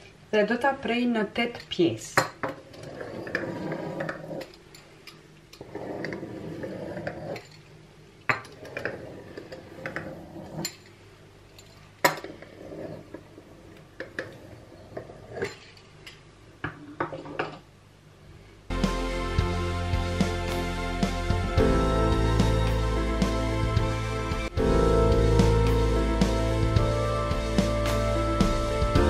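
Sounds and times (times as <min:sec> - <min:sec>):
pizza cutter rolling on dough: 0:02.6 - 0:04.5.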